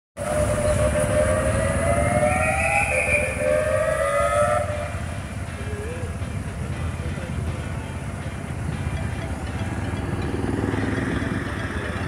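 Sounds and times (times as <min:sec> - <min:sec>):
ambulance siren wailing: 0:00.2 - 0:06.2
street traffic rumble: 0:00.2 - 0:12.0.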